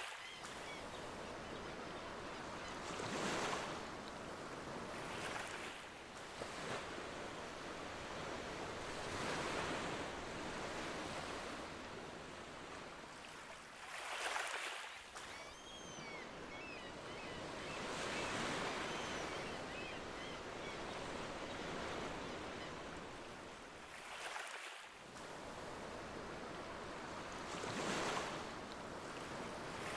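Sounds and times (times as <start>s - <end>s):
ocean waves washing ashore: 0.0s - 15.3s.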